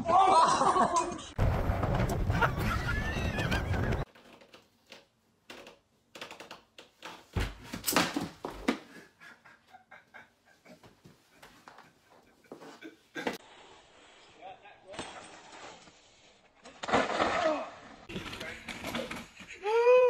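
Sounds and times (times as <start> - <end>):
person crying out: 19.6 - 20.0.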